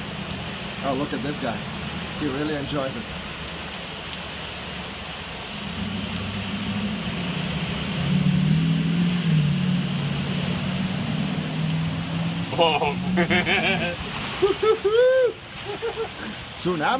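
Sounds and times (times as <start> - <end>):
heavy rain hiss: 0.0 - 16.9
truck driving through floodwater: 0.0 - 16.9
truck engine hum: 5.4 - 14.9
faint high whine: 5.7 - 11.8.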